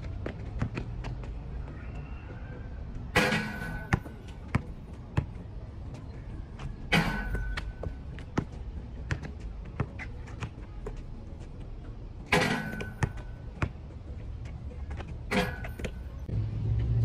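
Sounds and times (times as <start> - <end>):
basketball bouncing on concrete: 0.2 - 1.3, 3.8 - 5.4, 7.2 - 11.0, 12.6 - 13.8.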